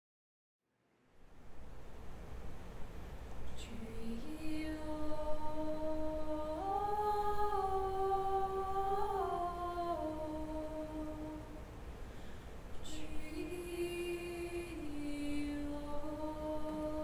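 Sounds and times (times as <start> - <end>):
choir humming: 3.6 - 11.8, 12.8 - 17.0.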